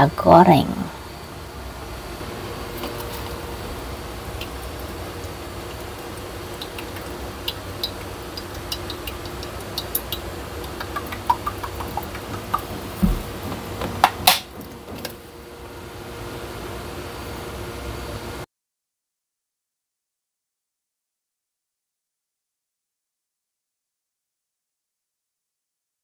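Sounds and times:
steady low hum: 0.0s - 18.5s
loud knocks: 11.8s - 15.1s.

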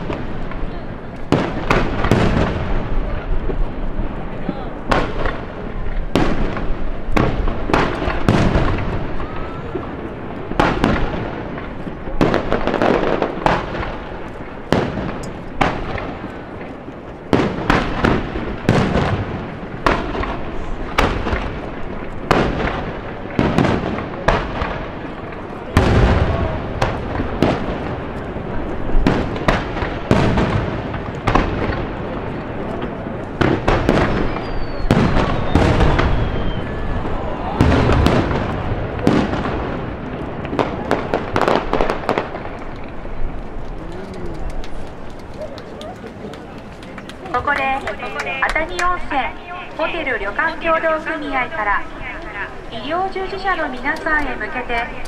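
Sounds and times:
firework shells booming: 0.0s - 43.8s.

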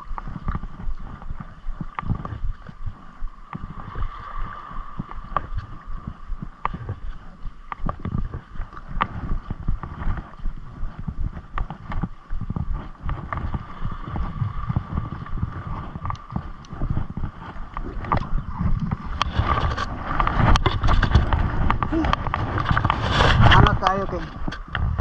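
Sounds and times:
waves lapping on rocky shore: 0.0s - 10.3s
wind buffeting microphone: 0.0s - 25.0s.

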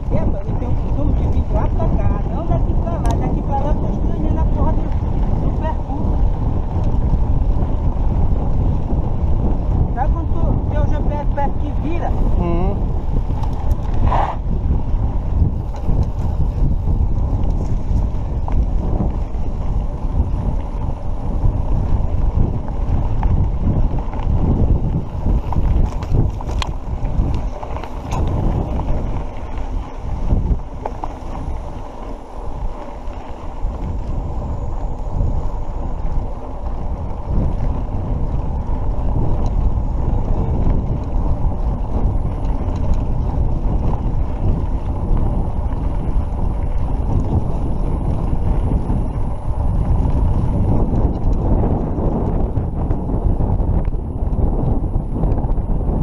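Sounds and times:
wind buffeting microphone: 0.0s - 56.0s
faint ticks: 3.0s - 3.2s, 13.3s - 14.4s, 25.5s - 35.2s, 39.3s - 39.7s, 40.7s - 43.2s, 50.8s - 52.4s.

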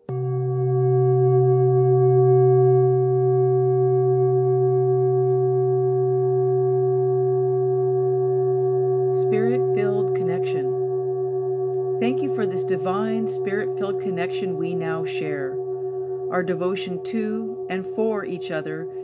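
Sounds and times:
sustained ringing tone: 0.0s - 19.0s
person speaking: 9.2s - 10.8s, 12.1s - 15.6s, 16.3s - 18.9s.

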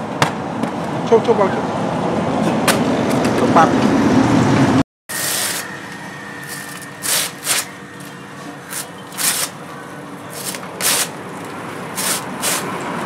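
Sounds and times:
knife blade scraping: 5.1s - 9.6s, 10.3s - 11.2s, 12.0s - 12.8s.

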